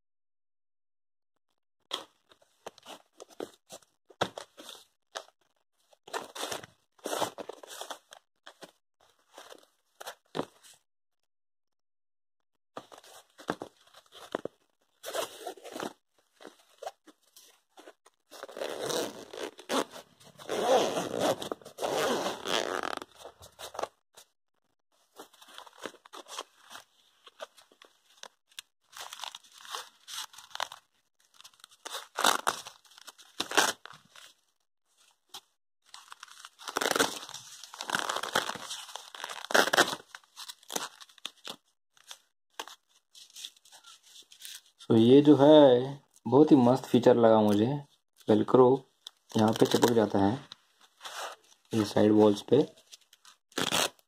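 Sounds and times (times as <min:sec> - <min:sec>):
fabric pouch rustling: 0:12.8 - 0:24.0, 0:35.8 - 0:41.3
velcro tearing: 0:18.3 - 0:23.9, 0:28.9 - 0:34.2, 0:35.8 - 0:44.7, 0:49.3 - 0:50.1, 0:52.8 - 0:54.0.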